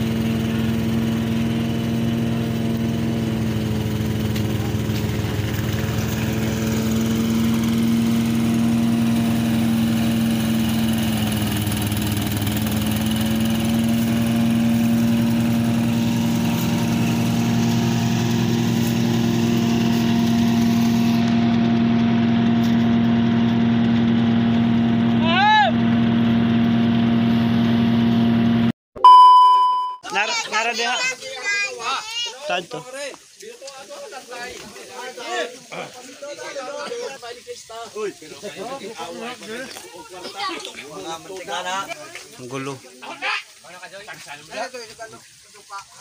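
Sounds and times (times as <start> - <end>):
thresher engine running: 0.0 - 28.7.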